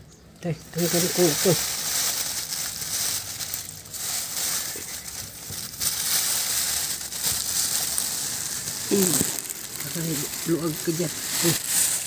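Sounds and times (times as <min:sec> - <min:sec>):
plastic bag crinkling: 0:00.7 - 0:12.0.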